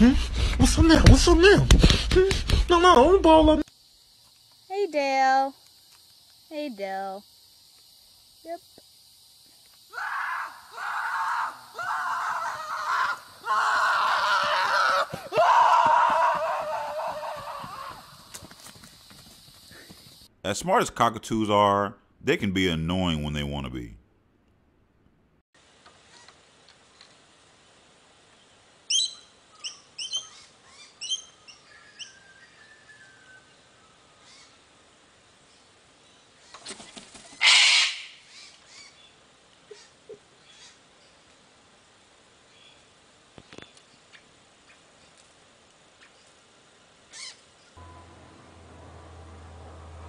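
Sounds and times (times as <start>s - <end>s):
horse screaming cries: 9.9s - 18.2s
cockatoo squawking: 37.4s - 38.5s.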